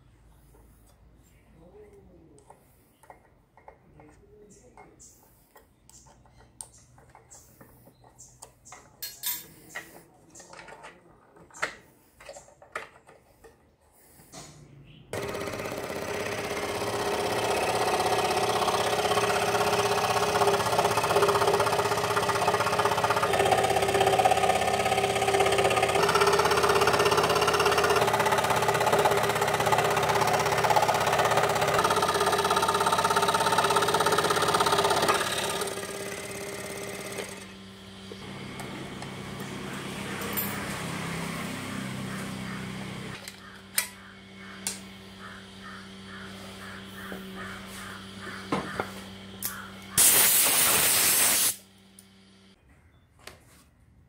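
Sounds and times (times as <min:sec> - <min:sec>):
scroll saw cutting wood: 0:15.2 - 0:43.2.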